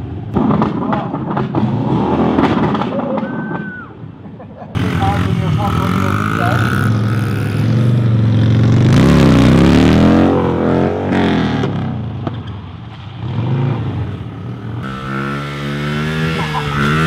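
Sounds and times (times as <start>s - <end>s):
motorcycle engine revving: 4.8s - 12.4s, 13.2s - 17.0s.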